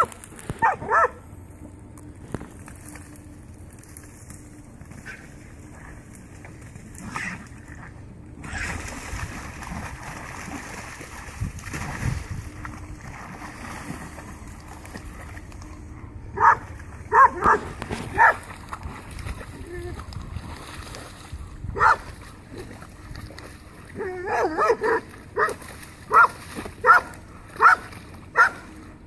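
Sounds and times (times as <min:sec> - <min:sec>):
dog barking: 0:00.0 - 0:01.2, 0:16.4 - 0:18.4, 0:21.8 - 0:22.1, 0:24.2 - 0:28.6
dog splashing in water: 0:03.8 - 0:15.8, 0:16.4 - 0:28.8.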